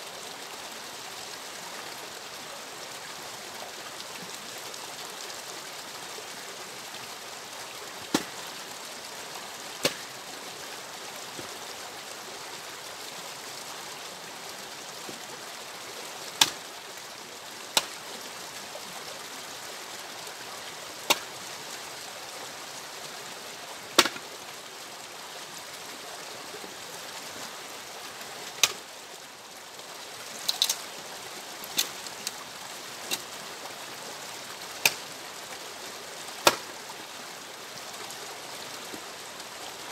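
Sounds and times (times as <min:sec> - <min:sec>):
axe splitting wood: 0:08.1 - 0:08.3, 0:09.8 - 0:10.0, 0:16.4 - 0:16.6, 0:21.1 - 0:21.3, 0:24.0 - 0:24.2, 0:28.6 - 0:28.8, 0:36.4 - 0:36.7.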